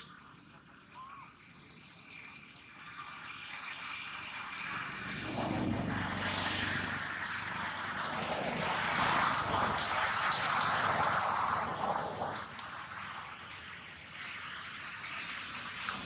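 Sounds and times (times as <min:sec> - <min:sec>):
aircraft flying over: 0:00.0 - 0:16.0.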